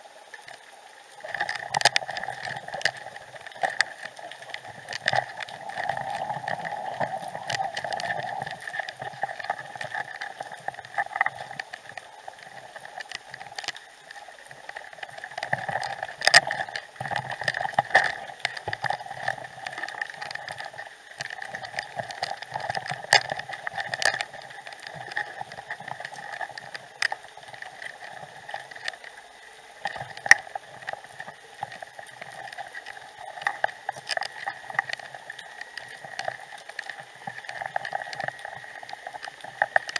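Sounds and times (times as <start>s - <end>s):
sharp clicks and crackles: 0.2s - 39.9s
underwater rushing hiss: 2.2s - 10.8s.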